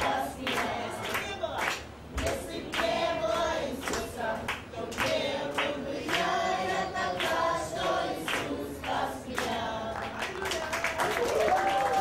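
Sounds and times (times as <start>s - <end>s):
group singing: 0.0s - 10.4s
rhythmic hand clapping: 0.0s - 12.0s.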